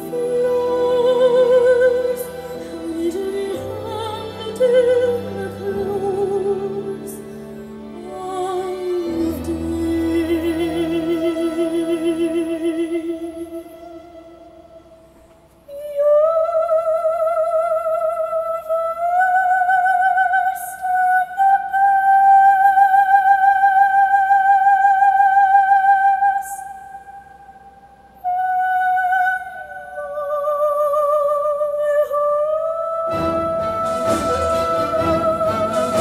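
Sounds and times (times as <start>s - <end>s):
soprano singing with vibrato: 0.0s - 15.0s, 15.7s - 36.0s
orchestra with strings: 0.0s - 15.1s, 33.0s - 36.0s.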